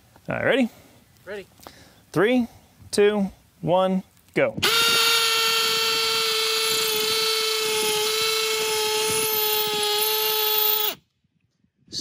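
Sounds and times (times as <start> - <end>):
hammer drill drilling into concrete: 4.6 - 11.0.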